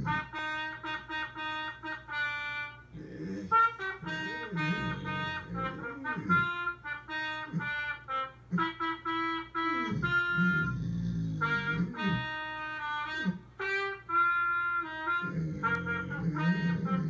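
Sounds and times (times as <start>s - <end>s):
trumpet playing held notes: 0.0s - 17.0s
dog howling: 3.0s - 6.6s, 15.1s - 17.0s.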